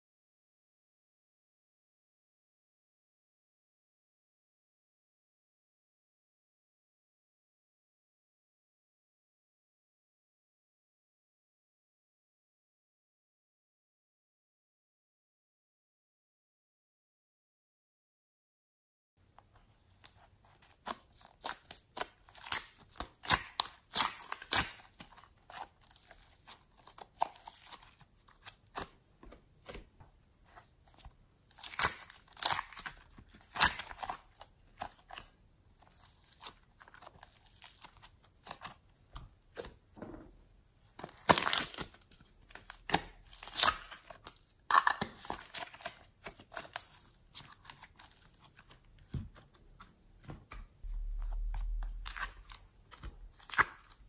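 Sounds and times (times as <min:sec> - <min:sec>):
plastic containers opened: 0:41.0 - 0:46.7.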